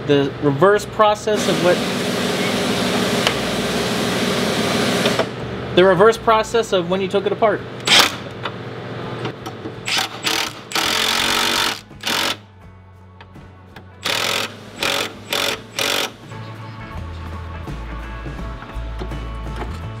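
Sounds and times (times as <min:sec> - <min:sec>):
impact wrench hammering: 0:09.9 - 0:12.4, 0:14.0 - 0:16.3
faint background music: 0:10.3 - 0:20.0.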